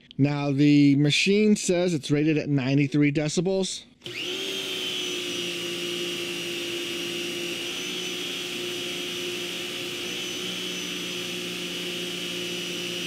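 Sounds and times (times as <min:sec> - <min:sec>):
pressure washer running: 0:04.0 - 0:13.0.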